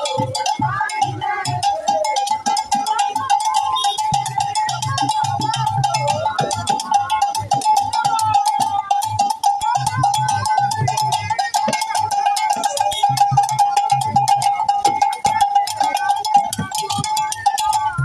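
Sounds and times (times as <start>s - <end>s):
rapid metallic bell striking: 0.0s - 18.0s.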